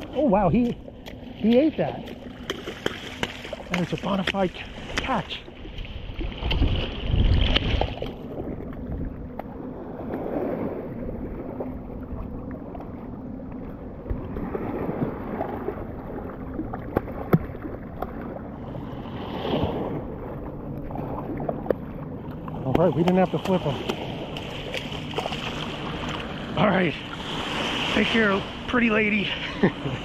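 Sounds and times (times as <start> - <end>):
small waves washing in: 0.0 - 30.0
wind on microphone: 5.6 - 9.3.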